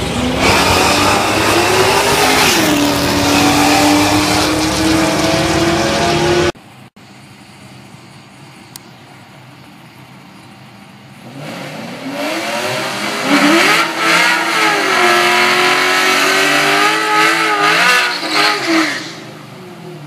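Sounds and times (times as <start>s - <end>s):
race car engine revving: 0.0s - 6.6s, 11.2s - 19.3s.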